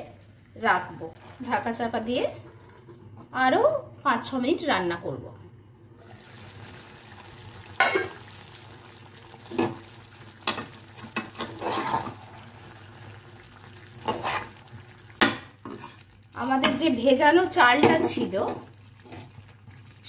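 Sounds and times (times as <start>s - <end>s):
curry sizzling in a metal pan: 0.0s - 2.7s, 6.0s - 20.0s
spatula scraping a pan: 11.2s - 12.3s, 14.0s - 14.7s, 15.6s - 16.2s.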